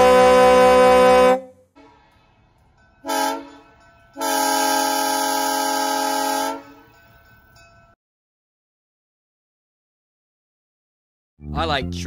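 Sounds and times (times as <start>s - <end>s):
locomotive air horn blasts: 0.0s - 2.0s, 3.0s - 6.9s.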